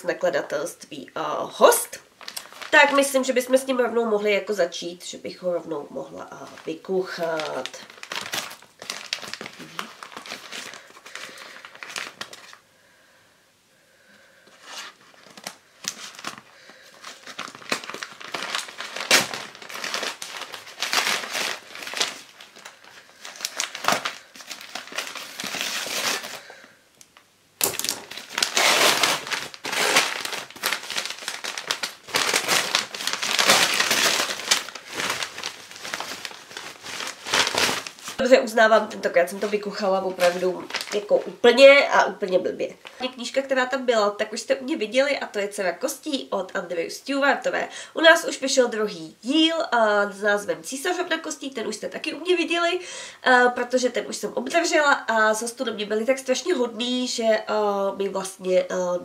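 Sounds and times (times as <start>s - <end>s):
packaging crinkling and tearing: 2.2s - 3.1s, 6.4s - 12.6s, 14.5s - 38.4s, 39.2s - 41.4s.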